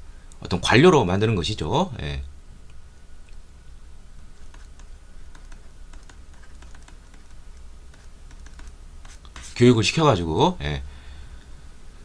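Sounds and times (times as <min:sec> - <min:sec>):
faint low hum: 0:00.0 - 0:12.0
stylus tapping on a tablet: 0:04.4 - 0:09.5.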